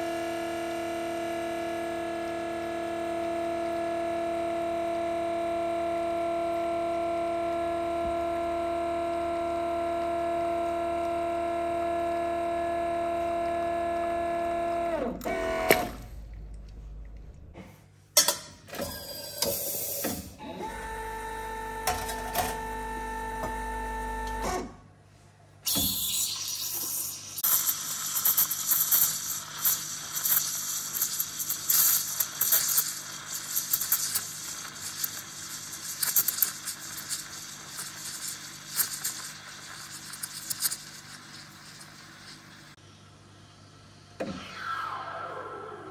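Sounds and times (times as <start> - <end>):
espresso machine pump hum: 0.0 - 17.6, 19.9 - 24.6, 25.7 - 43.6
steady machine hum: 0.0 - 17.6
steam wand hissing into milk: 25.7 - 42.8.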